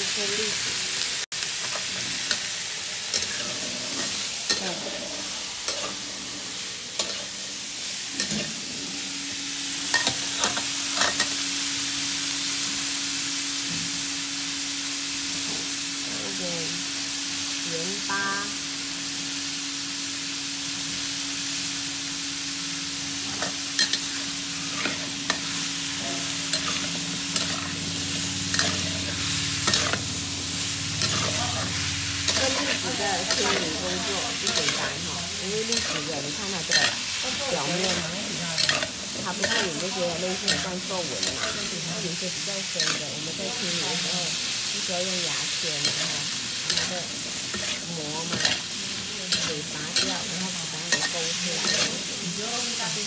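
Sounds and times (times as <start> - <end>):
food sizzling in oil: 0.0 - 53.0.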